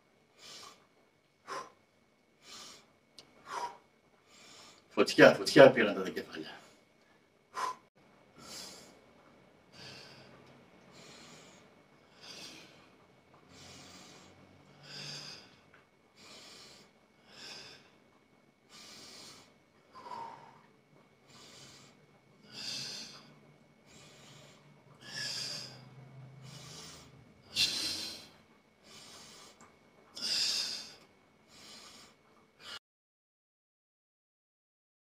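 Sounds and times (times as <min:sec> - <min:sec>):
man breathing hard: 0:00.4 - 0:00.8, 0:01.4 - 0:01.8, 0:02.4 - 0:04.9, 0:07.5 - 0:09.0, 0:09.7 - 0:18.0, 0:18.6 - 0:32.8.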